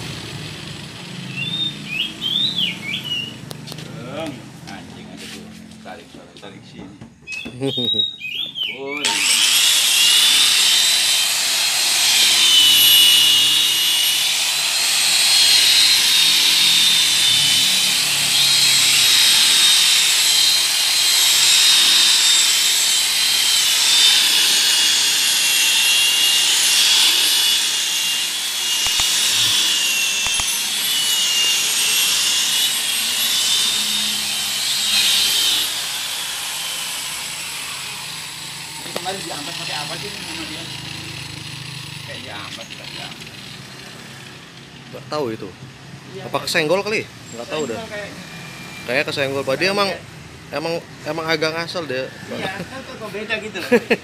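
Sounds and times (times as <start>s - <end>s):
electric polisher whining: 0.0s - 5.5s, 9.0s - 44.9s, 51.9s - 53.9s
buffing pad rubbing hiss: 28.8s - 29.6s.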